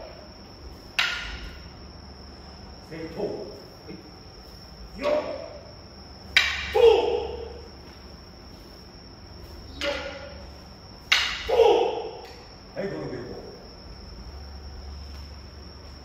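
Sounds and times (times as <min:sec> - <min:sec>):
loud shouted cries echoing: 0:06.4 - 0:07.6, 0:11.1 - 0:12.2.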